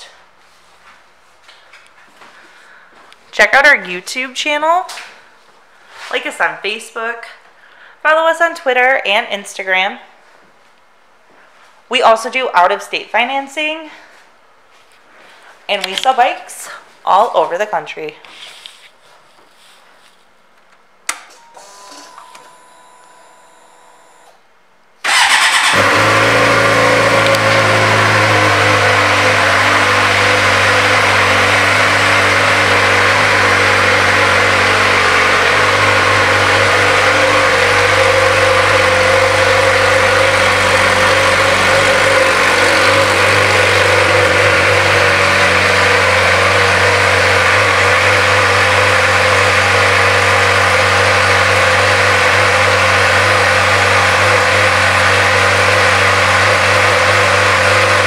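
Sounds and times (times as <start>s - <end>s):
motorcycle engine idling: 25.1s - 48.6s.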